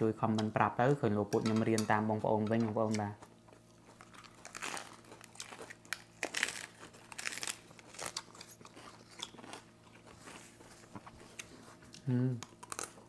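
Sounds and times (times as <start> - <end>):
crunching and chewing lettuce: 3.0 - 13.0.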